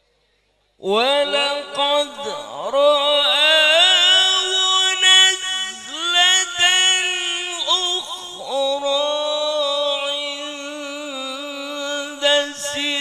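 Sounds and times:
man chanting melodic recitation: 0.8 - 13.0.

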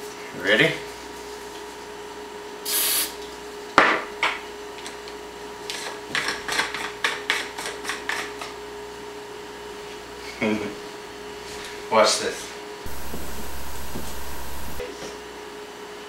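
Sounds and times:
aerosol spray: 2.7 - 3.1.

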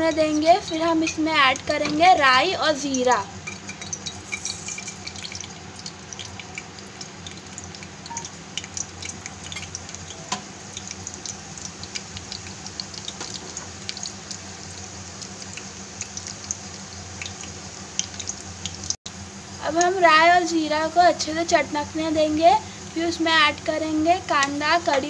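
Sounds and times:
seeds sizzling in hot oil: 0.0 - 25.0.

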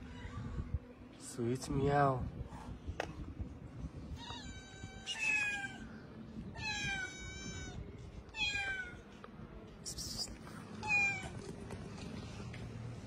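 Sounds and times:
cat meowing: 4.1 - 5.9, 6.5 - 9.0, 10.8 - 11.4.

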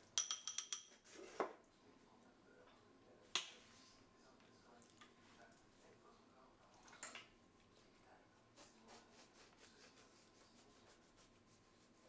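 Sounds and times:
spoon clinking glass bowl: 0.1 - 1.0.

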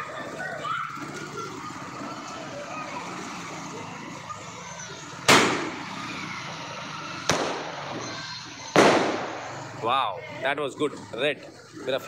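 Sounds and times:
firework bangs with echo: 5.3 - 5.9, 7.2 - 8.1, 8.7 - 9.7.

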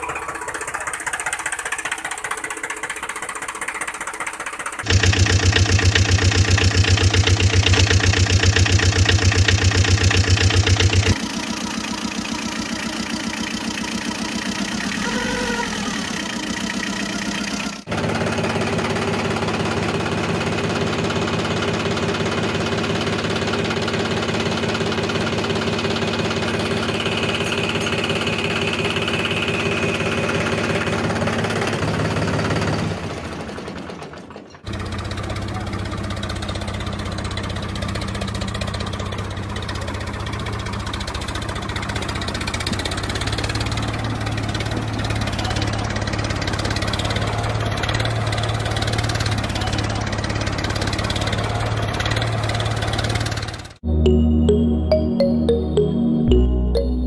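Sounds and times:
engine running: 0.0 - 57.0
brief wavering tone: 53.9 - 57.0.

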